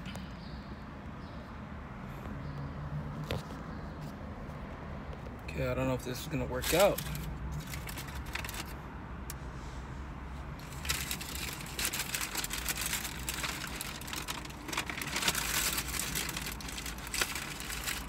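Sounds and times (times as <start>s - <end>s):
paper wrapper crinkling: 6.6s - 8.8s, 10.6s - 18.0s.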